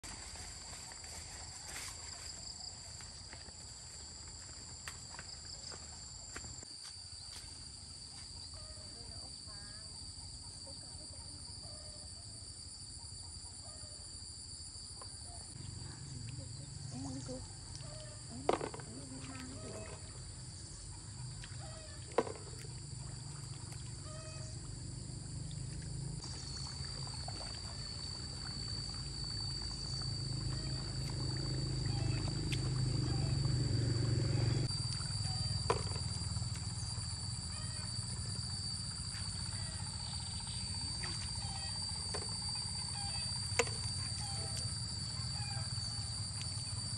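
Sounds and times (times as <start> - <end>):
insects singing: 15.0 - 46.9
feet sloshing through water: 18.8 - 33.3.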